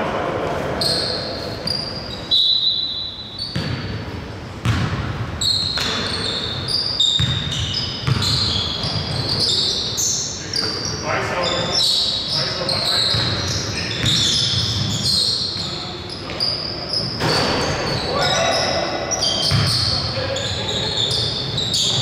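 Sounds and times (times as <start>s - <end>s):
sneakers squeaking: 0.6s - 22.0s
basketball bouncing on floor: 3.5s - 4.0s, 4.6s - 5.2s, 7.2s - 9.1s, 19.5s - 19.8s.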